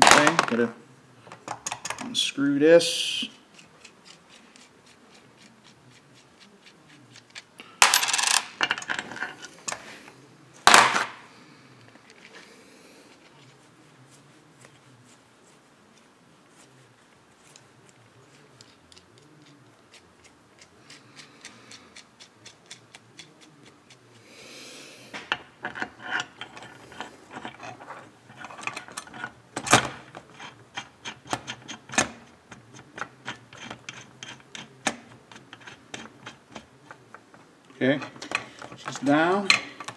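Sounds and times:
metal parts clicking and rattling: 25.6 - 37.0.

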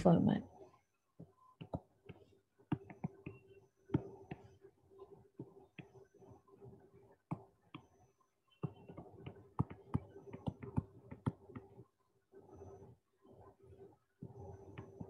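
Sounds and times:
stylus tapping on touchscreen: 1.2 - 4.6, 8.5 - 11.8.

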